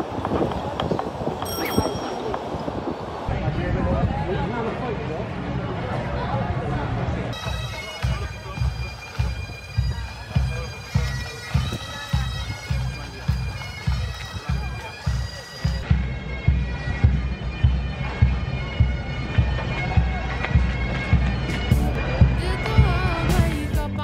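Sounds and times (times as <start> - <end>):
bagpipes playing a march: 7.3 - 23.1
bass drum beat: 19.9 - 24.0.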